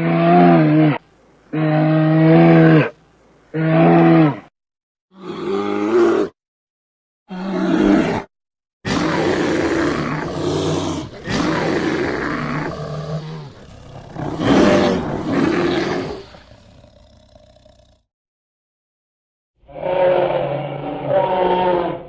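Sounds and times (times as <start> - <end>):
bear roaring: 5.1 - 6.4, 7.3 - 8.3, 8.9 - 18.1.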